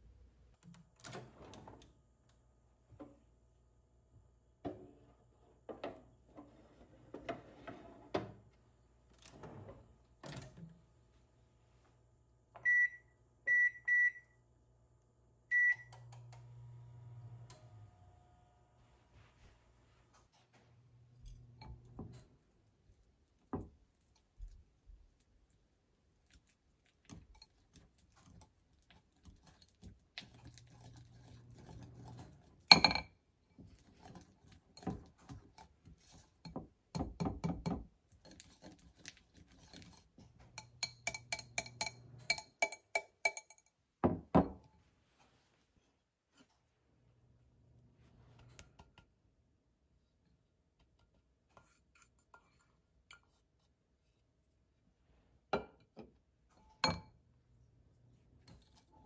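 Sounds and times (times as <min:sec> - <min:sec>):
whisk clinking against glass bowl: 0:40.6 - 0:43.7.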